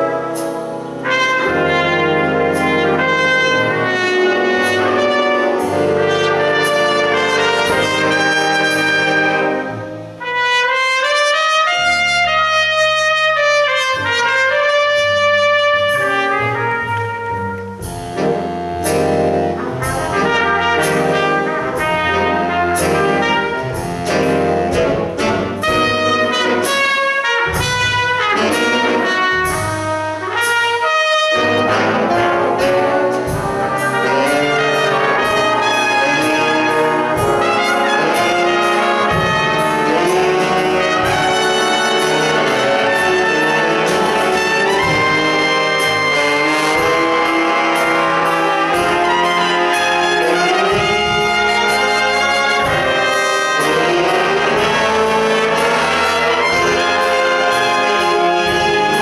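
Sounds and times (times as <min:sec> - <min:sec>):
jazz big band ballad: 0:00.0 - 0:59.0
solo trumpet: 0:00.0 - 0:59.0.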